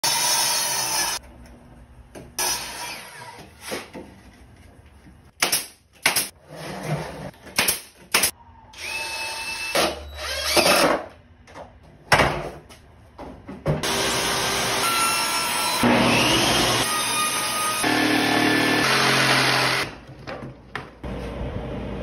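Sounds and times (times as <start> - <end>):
drill whine: 13.9 - 16.9.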